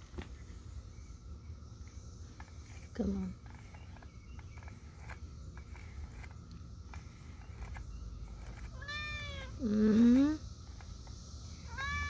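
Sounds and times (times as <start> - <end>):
low steady hum: 0.0 - 12.0
cat meowing: 8.8 - 9.6, 11.7 - 12.0.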